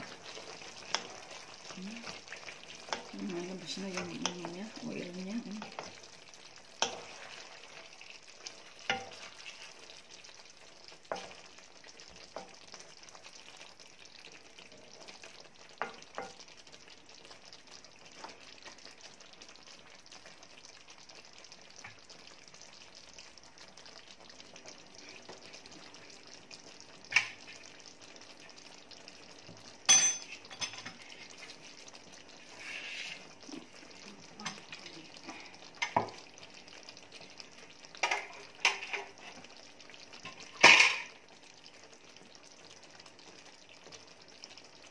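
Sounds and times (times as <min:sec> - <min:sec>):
sauce sizzling in a pan: 0:00.0 - 0:44.9
wooden spatula scraping pan: 0:32.4 - 0:33.4.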